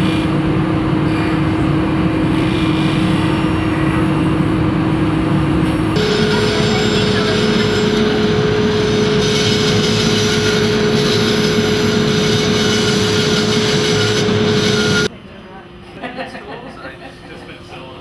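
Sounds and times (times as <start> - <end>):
band saw cutting wood: 6.0 - 15.1.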